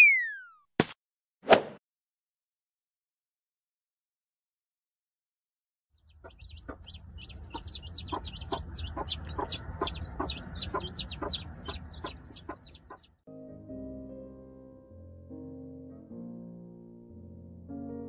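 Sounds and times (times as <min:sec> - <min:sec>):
chicks peeping: 0:06.0 - 0:13.2
hen clucking: 0:06.0 - 0:13.2
piano music: 0:07.4 - 0:18.0.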